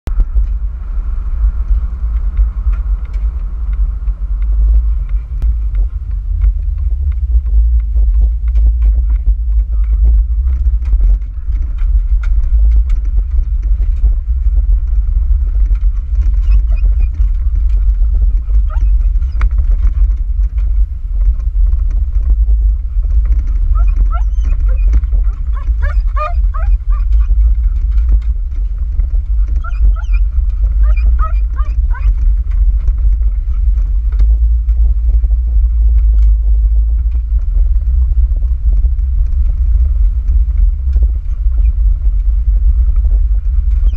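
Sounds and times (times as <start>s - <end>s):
wind and road noise in car: 0.0s - 43.9s
dog whining: 16.3s - 17.4s, 18.5s - 19.4s, 23.7s - 27.4s, 29.6s - 32.2s.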